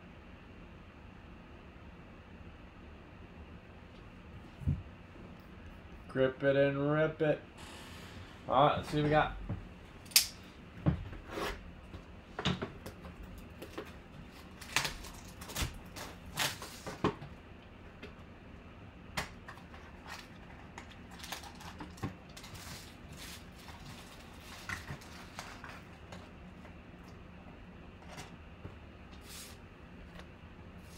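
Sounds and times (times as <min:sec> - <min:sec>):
plastic wrap crinkling and tearing: 0:13.5 - 0:17.0, 0:19.6 - 0:26.0.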